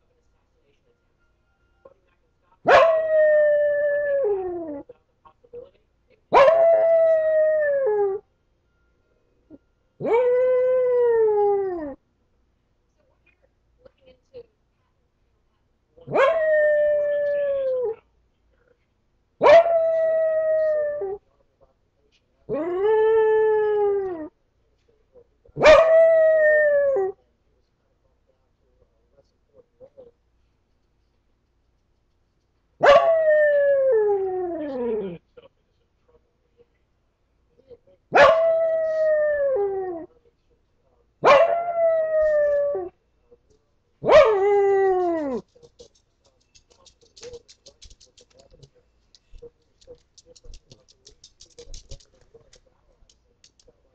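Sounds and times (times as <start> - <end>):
dog howling: 19.4 - 21.2, 32.8 - 35.2, 38.2 - 40.1, 41.2 - 42.9, 44.1 - 45.4.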